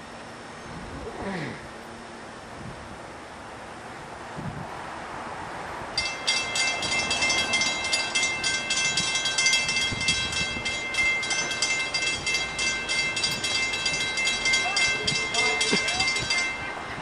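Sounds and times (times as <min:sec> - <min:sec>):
railroad crossing bell ringing: 0:06.0 - 0:17.0.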